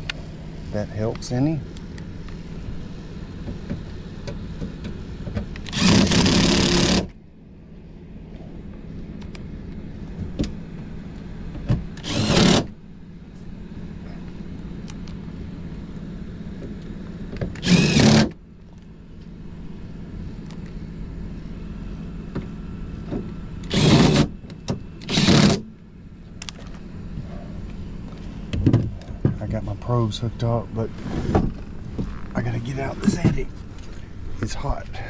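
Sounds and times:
steady low hum: 0:00.0 - 0:35.0
cordless drill driving into metal: 0:05.6 - 0:07.1, 0:12.0 - 0:12.7, 0:17.6 - 0:18.4, 0:23.6 - 0:24.4, 0:25.0 - 0:25.6.

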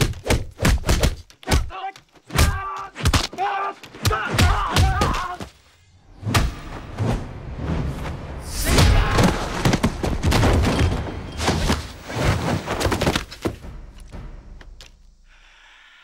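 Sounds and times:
punch and kick impacts: 0:00.0 - 0:01.7, 0:04.0 - 0:05.5, 0:06.2 - 0:06.8
body landing on wooden planks: 0:09.0 - 0:13.6.

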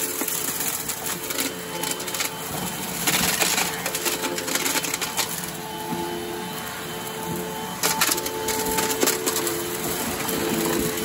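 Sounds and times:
vacuum cleaner motor whine: 0:00.0 - 0:11.0.

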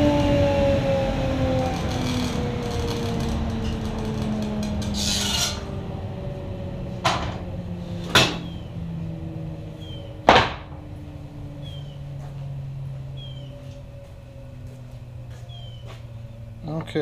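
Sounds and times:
steady low hum: 0:00.0 - 0:17.0
wooden boards knocking: 0:10.3 - 0:10.8.

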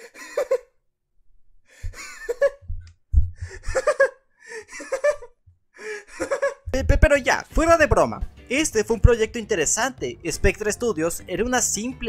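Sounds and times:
person laughing high-pitched: 0:02.0 - 0:02.7, 0:03.5 - 0:05.4, 0:06.1 - 0:06.9.

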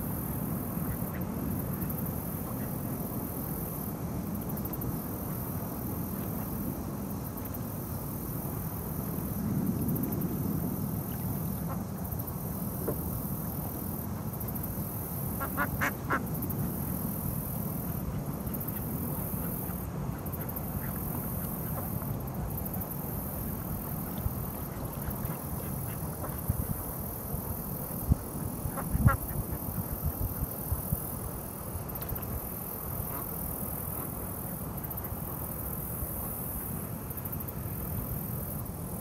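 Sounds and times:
duck quacking: 0:15.4 - 0:16.2.

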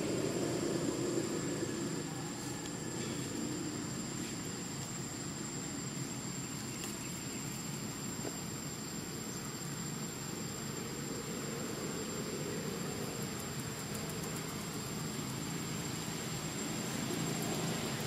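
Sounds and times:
low rumbling noise: 0:00.0 - 0:04.7.

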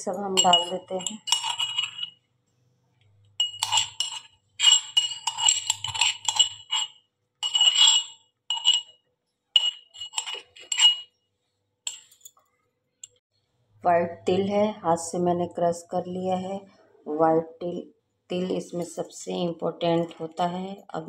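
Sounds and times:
metal spoon scraping metal mortar: 0:00.0 - 0:02.3, 0:03.2 - 0:09.0, 0:09.6 - 0:11.2, 0:11.9 - 0:12.3.

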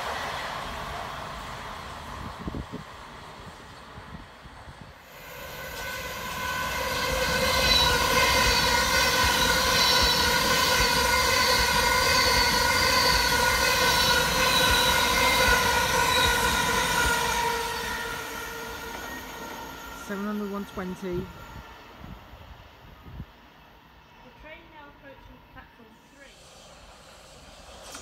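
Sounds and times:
train wheel and rail rumble: 0:00.0 - 0:28.0
train motor whine: 0:05.1 - 0:22.1.

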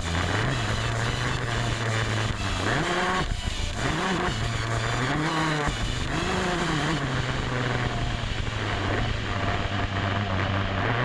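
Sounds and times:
dirt bike engine revving: 0:00.0 - 0:11.0.

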